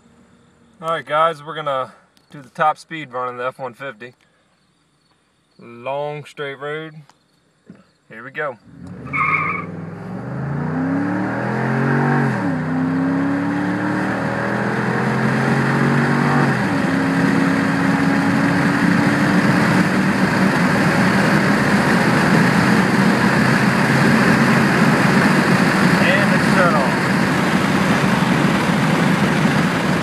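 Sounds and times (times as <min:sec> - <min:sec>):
wind and road noise: 0:07.0 - 0:30.0
car engine accelerating: 0:08.6 - 0:30.0.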